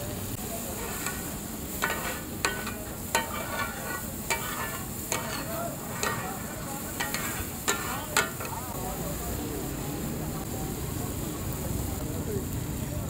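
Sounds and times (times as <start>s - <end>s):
chicken sizzling on a griddle: 0.0s - 13.0s
spatula scraping: 0.6s - 8.6s
spatula clanking on metal griddle: 0.6s - 8.8s.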